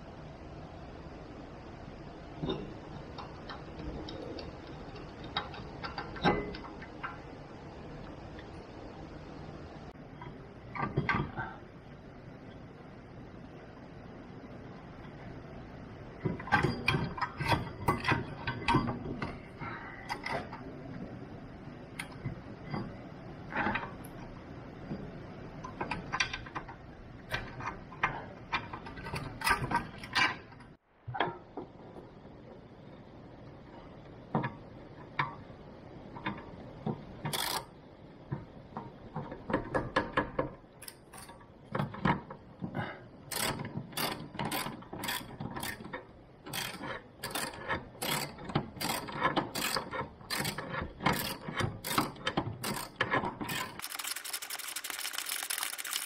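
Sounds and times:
ratchet wrench clicking: 0:37.3 - 0:37.7, 0:43.3 - 0:45.8, 0:46.5 - 0:56.0.

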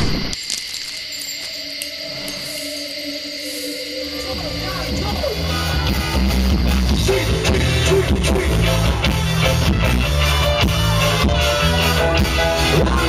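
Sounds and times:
electric guitar: 0:04.1 - 0:13.0
bass line: 0:04.2 - 0:13.0.

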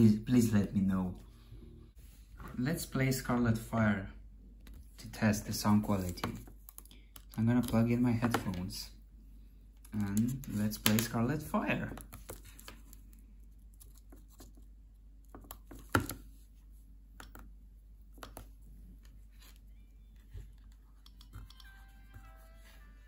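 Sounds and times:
steady low hum: 0:00.0 - 0:07.6
faint music from an earbud: 0:19.4 - 0:23.0.

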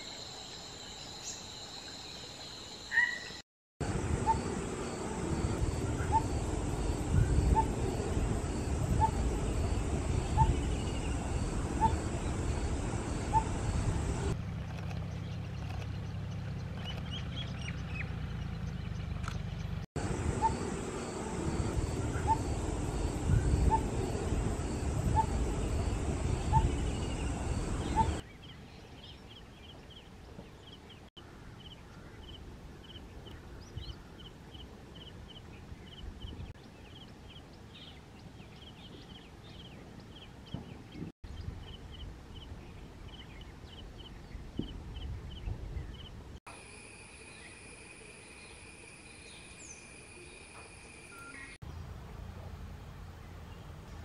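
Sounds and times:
low wind rumble: 0:03.8 - 0:14.4, 0:16.6 - 0:30.3, 0:31.3 - 0:46.4
steady high trill: 0:20.0 - 0:28.2.

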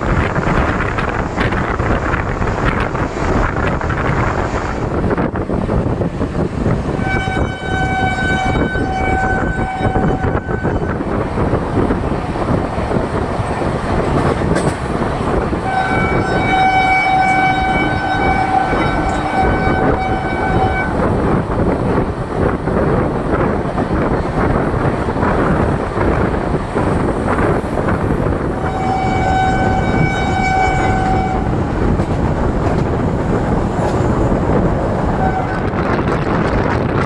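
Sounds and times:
wind rushing: 0:00.0 - 0:37.0
train horn blasts: 0:07.0 - 0:11.0, 0:15.6 - 0:21.0, 0:28.6 - 0:31.6, 0:35.2 - 0:35.8.

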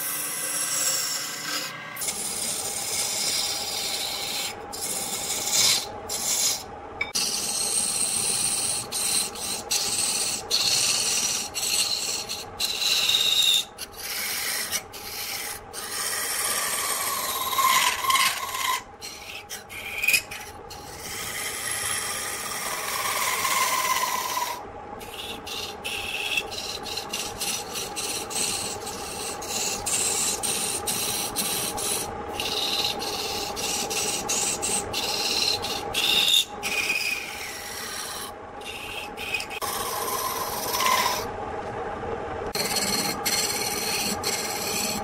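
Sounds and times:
chisel scraping spinning wood: 0:00.0 - 0:41.4, 0:42.5 - 0:45.0
lathe motor humming: 0:21.4 - 0:41.7, 0:42.4 - 0:45.0.

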